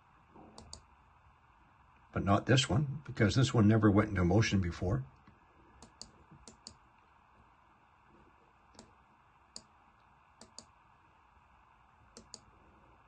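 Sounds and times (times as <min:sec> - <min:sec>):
computer mouse clicks: 0:00.6 - 0:00.9, 0:05.2 - 0:06.8, 0:08.7 - 0:10.8, 0:12.1 - 0:12.5.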